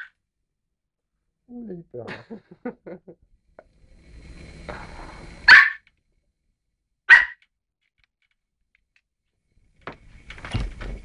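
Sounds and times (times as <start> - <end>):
dog barking: 5.5 - 5.8, 7.1 - 7.4.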